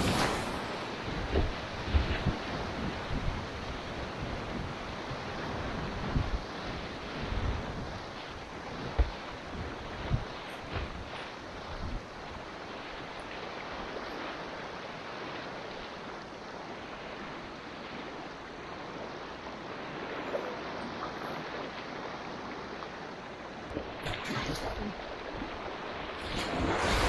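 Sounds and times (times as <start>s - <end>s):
kayak bumps: 0.0s - 3.4s, 7.3s - 13.4s
river water rushing: 0.0s - 27.0s.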